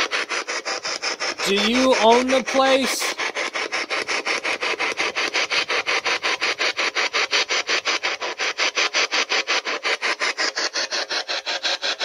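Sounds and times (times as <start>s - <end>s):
radio scanner choppy static: 1.4s - 3.2s.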